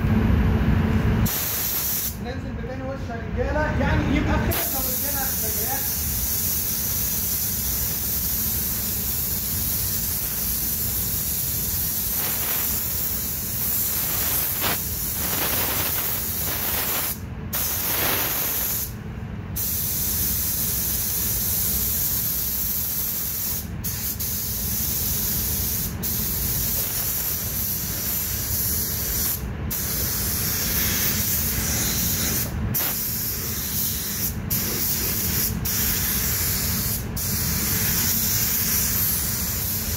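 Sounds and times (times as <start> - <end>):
spray gun hissing: 1.3 - 2.2, 4.5 - 18.9, 19.6 - 39.9.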